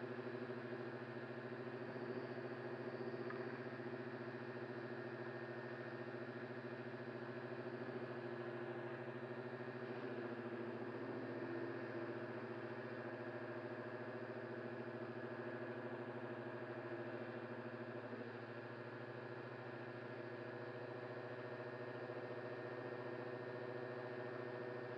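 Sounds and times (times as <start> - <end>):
motors and propellers humming: 0.0 - 24.9.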